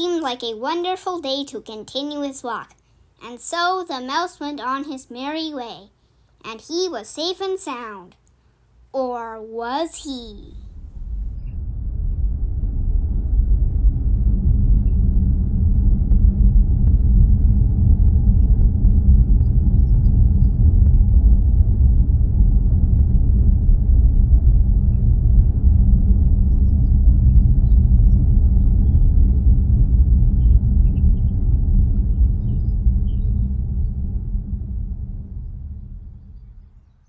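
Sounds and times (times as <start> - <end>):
loud low rumble: 10.5 - 37.0.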